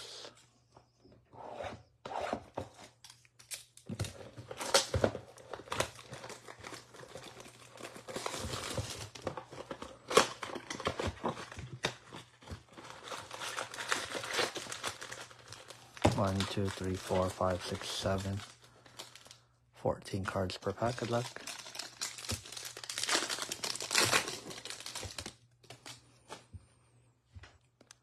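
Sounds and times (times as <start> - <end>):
plastic wrap crinkling: 20.7 - 26.3.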